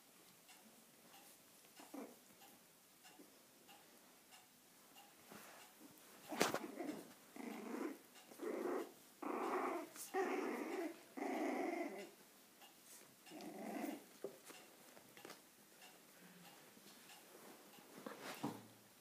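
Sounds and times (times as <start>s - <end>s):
puppies growling in play: 1.8s - 2.3s, 6.2s - 12.3s, 13.2s - 14.5s.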